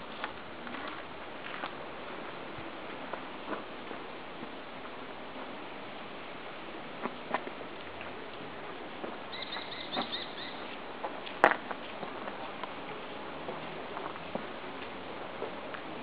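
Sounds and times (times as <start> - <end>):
steady outdoor hiss: 0.0 - 16.0
small bird chirping: 9.3 - 10.7.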